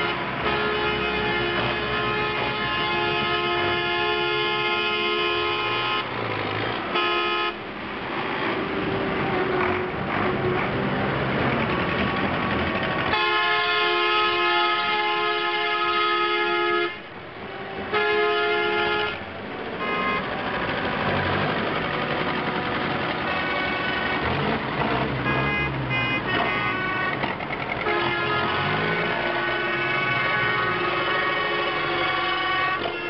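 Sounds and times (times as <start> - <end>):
tractor engines running: 0.0 - 33.0
multi-note horn blast: 6.9 - 7.6, 27.8 - 33.0.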